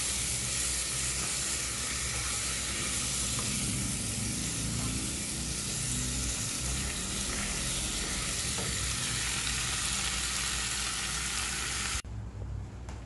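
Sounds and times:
spatula stirring in a wok: 0:00.0 - 0:10.4
food sizzling in a wok: 0:00.0 - 0:12.0.

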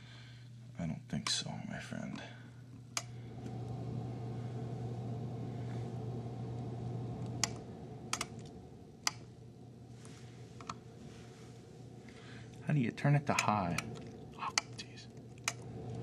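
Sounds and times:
air conditioner fan humming: 0:00.0 - 0:16.0.

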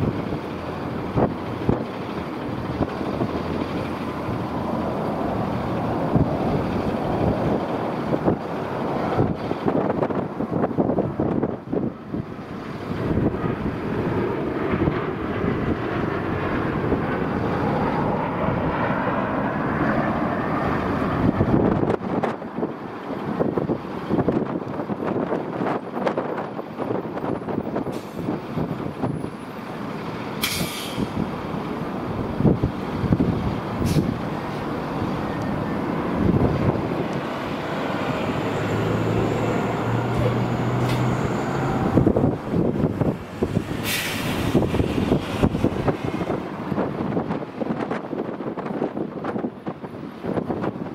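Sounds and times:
jet engines roaring: 0:00.0 - 0:50.9
brief hiss: 0:30.4 - 0:31.1, 0:43.8 - 0:44.6.

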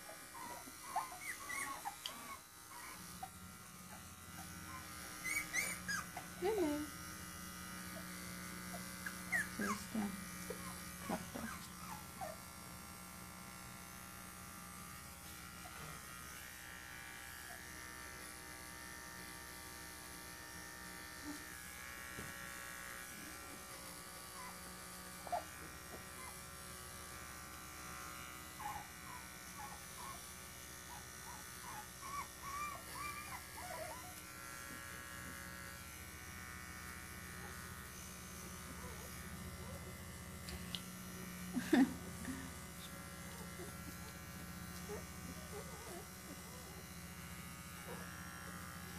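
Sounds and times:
puppy squeaks and whimpers: 0:00.0 - 0:06.4, 0:08.7 - 0:12.4, 0:25.2 - 0:25.6, 0:26.2 - 0:26.4, 0:28.6 - 0:30.3, 0:30.9 - 0:34.2
electric pet clipper humming: 0:00.0 - 0:48.9.

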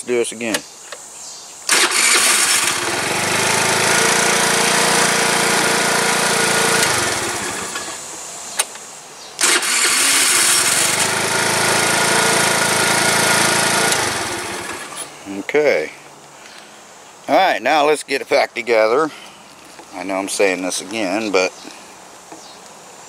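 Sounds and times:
electric starter cranking engine: 0:01.7 - 0:08.1, 0:09.4 - 0:15.1.

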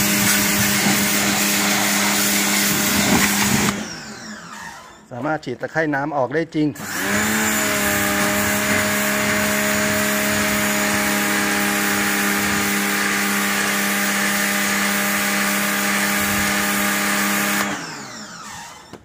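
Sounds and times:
water jet hissing on concrete: 0:00.0 - 0:03.7, 0:07.8 - 0:17.6
pressure washer motor humming: 0:00.0 - 0:05.0, 0:06.8 - 0:19.0.

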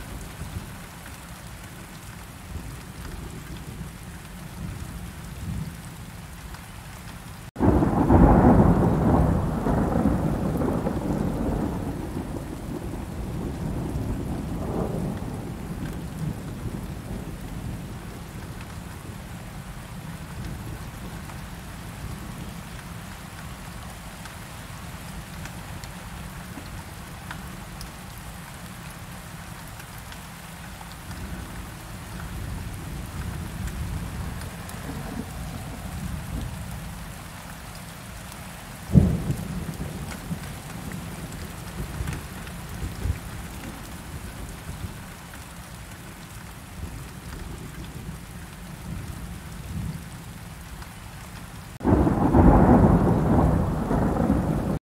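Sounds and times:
steady rain: 0:00.0 - 0:54.8
sharp thunderclap: 0:07.6 - 0:16.5, 0:38.9 - 0:41.0, 0:51.8 - 0:54.8
low rumbling thunder: 0:07.6 - 0:19.2, 0:32.2 - 0:36.9, 0:38.9 - 0:45.0, 0:51.8 - 0:54.8.

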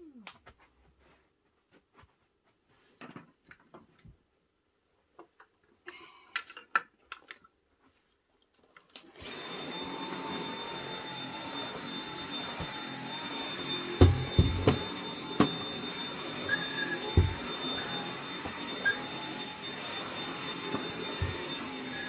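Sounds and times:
cordless stick vacuum whining: 0:09.1 - 0:22.0.

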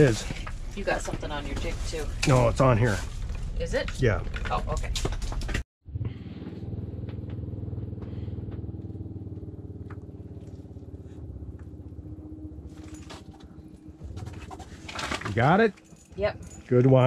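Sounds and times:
small engine running: 0:05.9 - 0:16.8.

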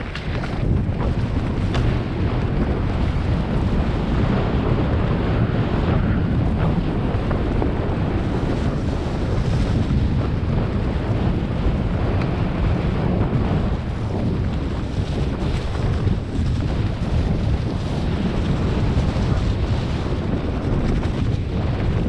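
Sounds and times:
tyres rolling over dirt and leaves: 0:00.0 - 0:03.7
wind buffeting microphone: 0:00.0 - 0:22.0.

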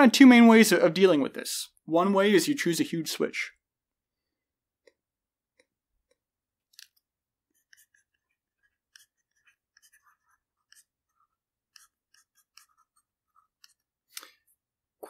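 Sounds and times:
stylus tapping and scratching on screen: 0:04.1 - 0:15.0.

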